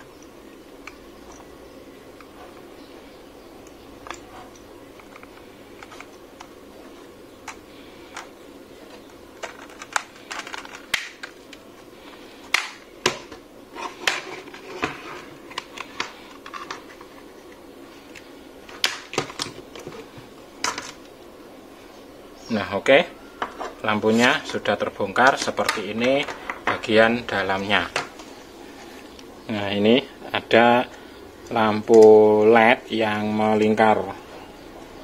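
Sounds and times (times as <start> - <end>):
plastic clicks and snaps: 9.4 - 11.6.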